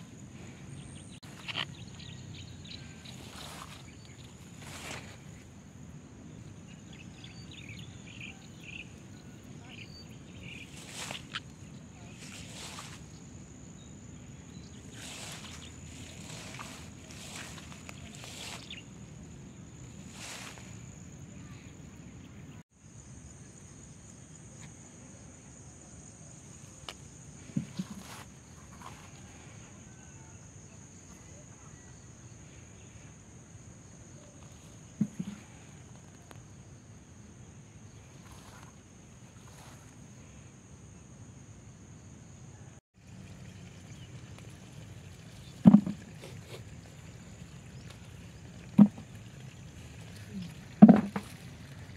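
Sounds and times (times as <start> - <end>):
insects droning: 0.0 - 51.9
plant leaves rustling: 2.8 - 5.6, 10.4 - 13.2, 14.7 - 19.1, 19.7 - 21.1.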